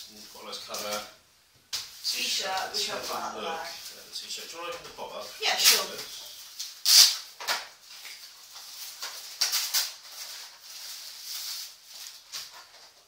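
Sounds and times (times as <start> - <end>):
packaging rustling and crinkling: 6.5 - 13.0.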